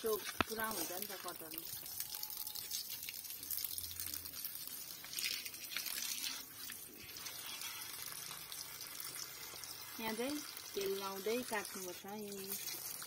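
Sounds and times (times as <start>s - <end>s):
water splashing on stone: 0.0s - 7.3s.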